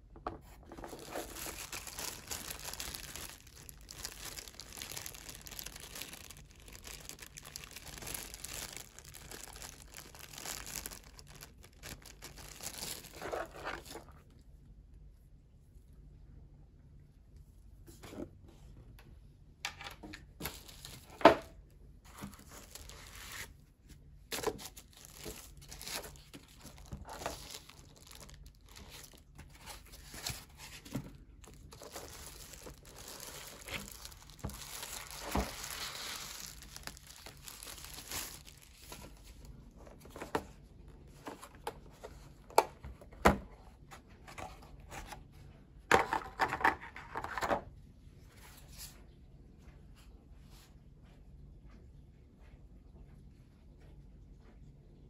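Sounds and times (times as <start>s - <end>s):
plastic packaging crinkling: 0.5s - 14.3s, 20.4s - 23.6s, 24.3s - 42.7s.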